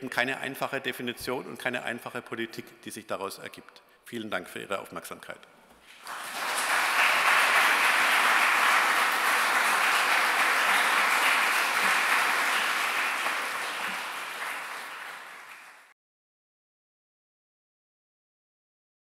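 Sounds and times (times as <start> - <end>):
audience applauding: 5.9 - 15.9.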